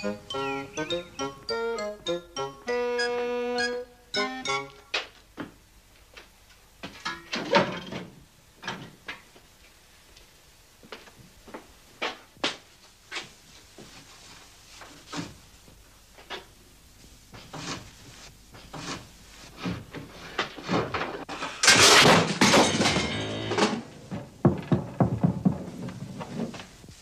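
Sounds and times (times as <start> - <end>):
music: 0.0 - 5.0
suitcases crashing down: 21.6 - 26.5
knocks and thuds: 24.1 - 26.6.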